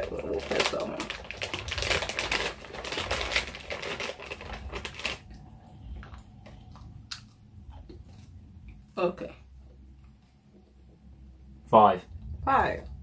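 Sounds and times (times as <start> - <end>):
plastic snack packet crinkling: 0.0 - 7.3.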